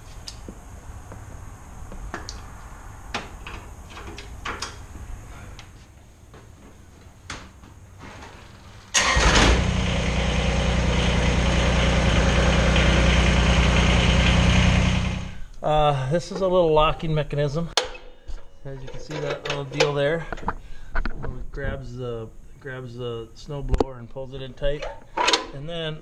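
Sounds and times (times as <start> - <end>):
tractor diesel engine starting and idling: 8.9 - 15.5.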